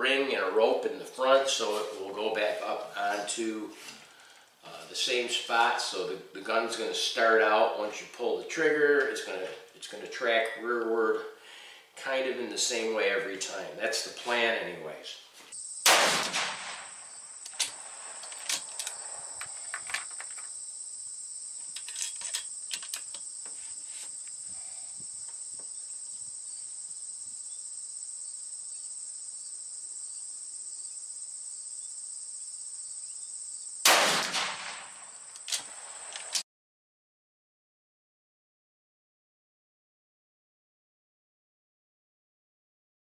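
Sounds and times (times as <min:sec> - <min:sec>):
high insect chorus: 0:15.4 - 0:36.4
rifle shots: 0:15.8 - 0:18.2, 0:33.8 - 0:35.1
handling clicks: 0:17.4 - 0:20.5.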